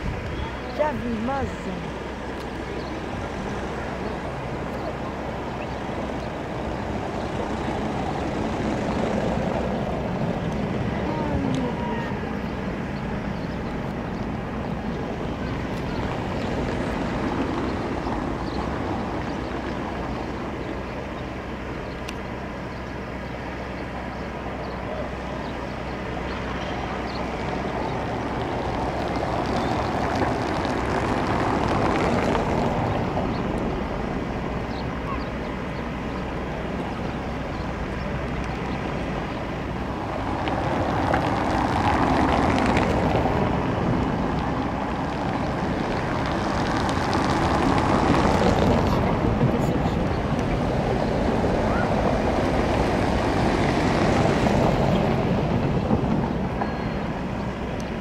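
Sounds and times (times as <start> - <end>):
wind noise on microphone: 0.0 - 22.0, 23.8 - 58.0.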